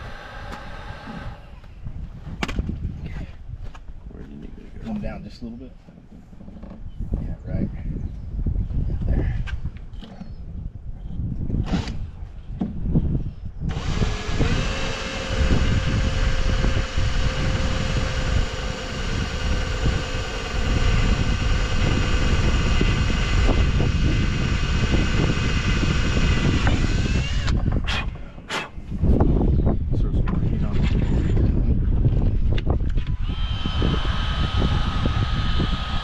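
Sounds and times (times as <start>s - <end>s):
cordless drill driving screw: 0.0s - 1.6s, 13.7s - 27.6s, 32.9s - 36.0s.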